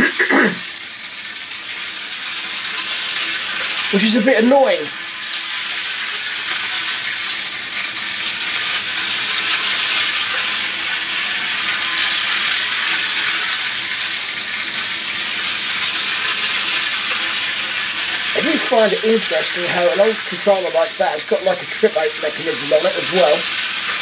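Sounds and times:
model train running on rails: 16.0s - 24.0s.

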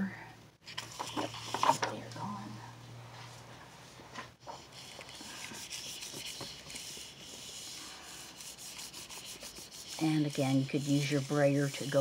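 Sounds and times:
hand rubbing paper: 4.4s - 12.0s.

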